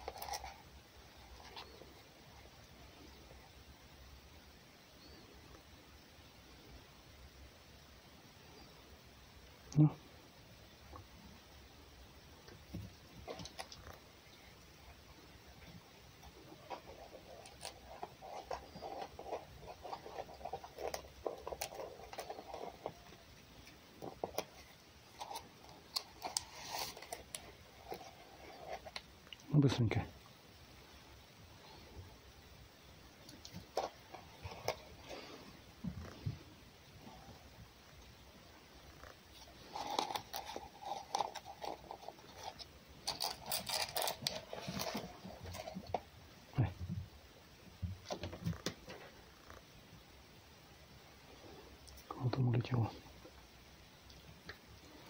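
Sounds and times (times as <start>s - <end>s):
fox chewing food: 15.7s - 29.4s.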